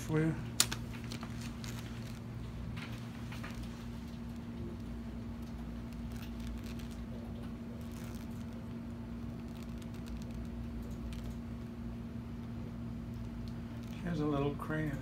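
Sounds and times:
plastic cover crinkling: 0:00.0 - 0:11.4
low electrical hum: 0:00.0 - 0:15.0.

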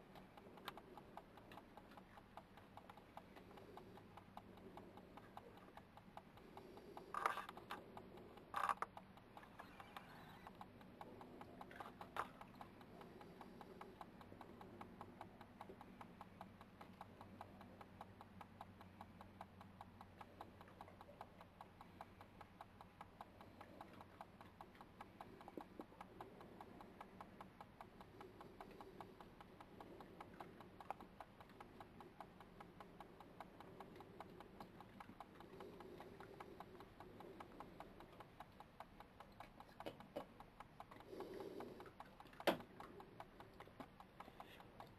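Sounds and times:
animals chewing with crunching clicks: 0:00.0 - 0:44.9
low steady hum: 0:00.0 - 0:44.9.

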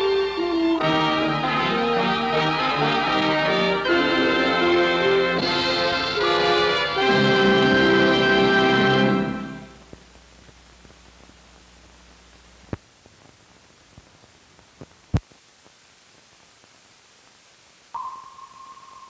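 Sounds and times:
film soundtrack hiss: 0:00.0 - 0:19.0
high steady tone: 0:18.0 - 0:19.0.

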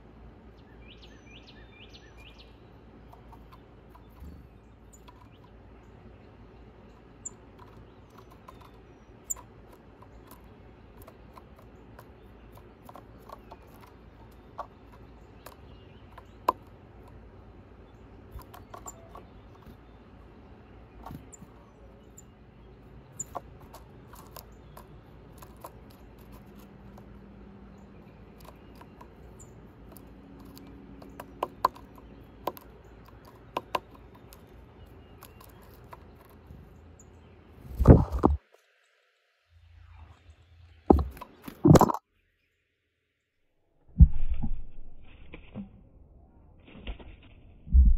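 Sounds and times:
bird pecking at peanut shell: 0:07.3 - 0:17.4, 0:23.2 - 0:36.5.

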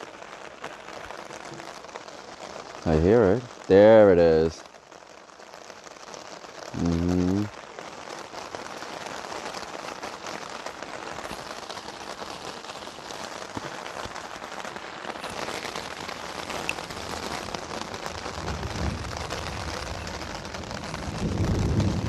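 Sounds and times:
heavy rain on an umbrella: 0:00.0 - 0:22.0
low rumble: 0:18.4 - 0:22.0.

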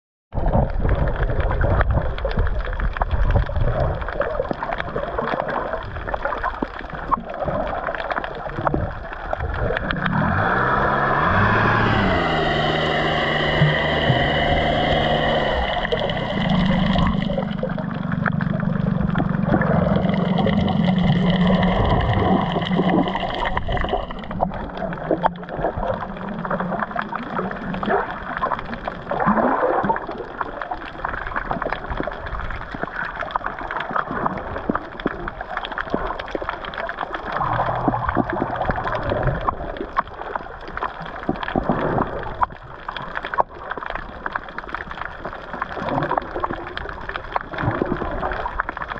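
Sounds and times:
water gurgling and splashing: 0:00.3 - 0:48.9
steady motor hum: 0:10.1 - 0:24.4.

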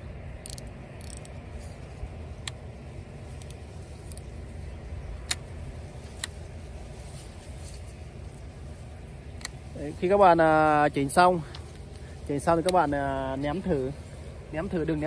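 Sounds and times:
steady low rumble: 0:00.0 - 0:15.0
fishing reel clicks: 0:00.4 - 0:01.4.

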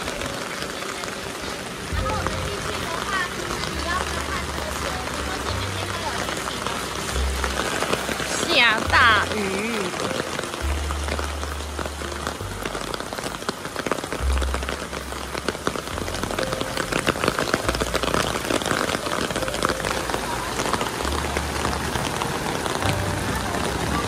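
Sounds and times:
rain pattering on umbrella: 0:00.0 - 0:24.0.

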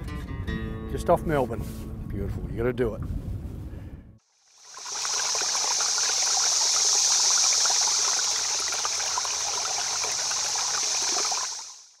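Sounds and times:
running water: 0:04.4 - 0:12.0
water trickling: 0:04.4 - 0:12.0.

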